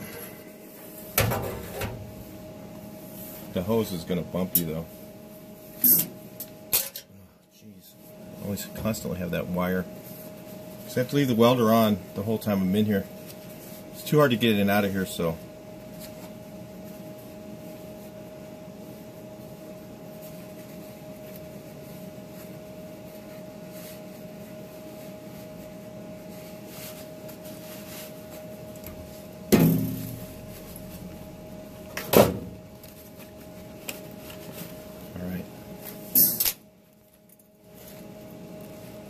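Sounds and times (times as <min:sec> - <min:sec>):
welder hum with cooling fan: 0:00.0 - 0:39.0
sharp knocks: 0:29.5 - 0:30.3.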